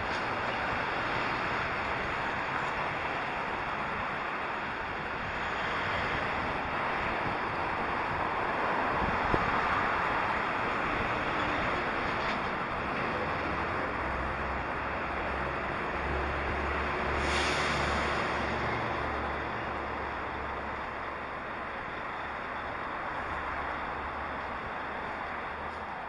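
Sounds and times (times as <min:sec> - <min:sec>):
rushing wind on microphone: 0:00.0 - 0:13.3
bicycle road noise: 0:00.0 - 0:26.0.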